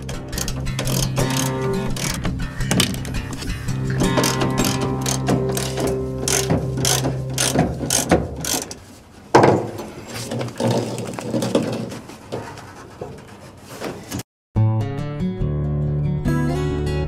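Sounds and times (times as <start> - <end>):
ratchet wrench clicking: 0.0 - 3.1, 4.0 - 8.8
acoustic guitar music: 0.0 - 8.6
metal body scraping and knocking: 0.0 - 14.2.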